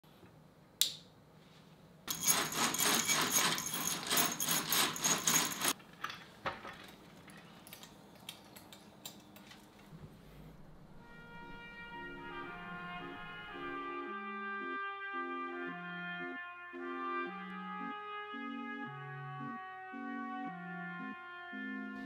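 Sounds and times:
small metal objects jangling: 2.1s - 7.4s.

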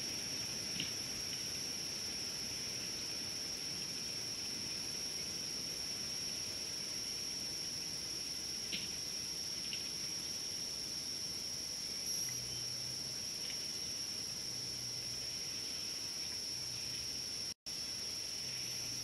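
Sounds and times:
high-pitched insect drone: 11.2s - 19.0s.

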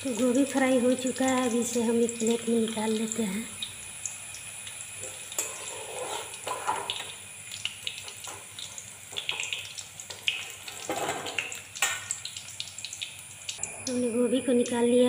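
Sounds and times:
hot oil sizzling: 0.0s - 15.0s
metal spoon scraping a pan: 5.0s - 7.1s.

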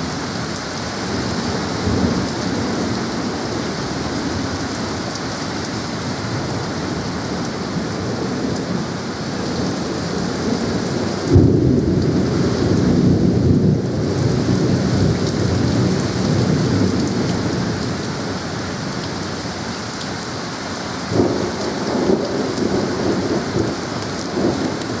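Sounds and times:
heavy rain: 0.0s - 25.0s
thunderclap rumbling: 6.4s - 17.7s, 21.1s - 25.0s.

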